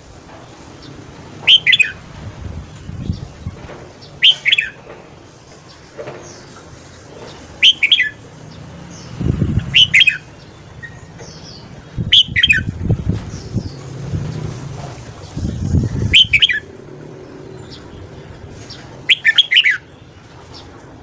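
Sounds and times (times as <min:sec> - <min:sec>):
bulbul singing bright phrases: 0:01.5 - 0:02.0, 0:04.2 - 0:04.8, 0:07.6 - 0:13.9, 0:15.4 - 0:16.7, 0:19.1 - 0:20.0.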